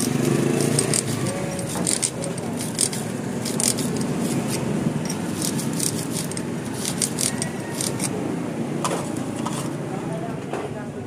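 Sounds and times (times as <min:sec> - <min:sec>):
scratchy rubbing of metal teeth: 0:00.0 - 0:08.2.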